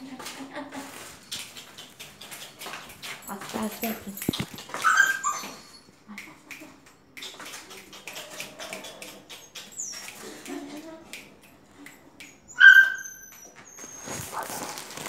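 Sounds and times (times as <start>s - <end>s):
puppy whining: 4.4s - 5.9s, 7.9s - 10.2s, 12.5s - 15.0s
puppy yelp: 4.7s - 5.7s, 12.5s - 15.0s.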